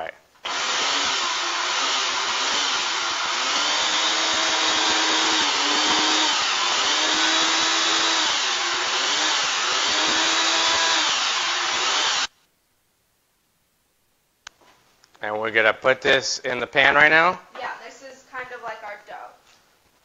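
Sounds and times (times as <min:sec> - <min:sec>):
food processor motor running: 0:00.5 - 0:12.3.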